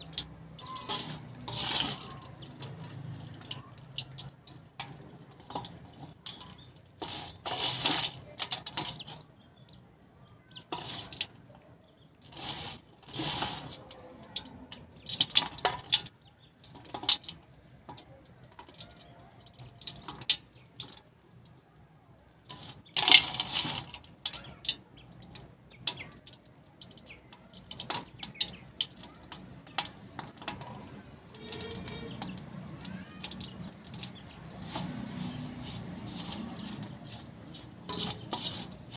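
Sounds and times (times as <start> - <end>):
dry clay crumbling: 0.0 - 9.4.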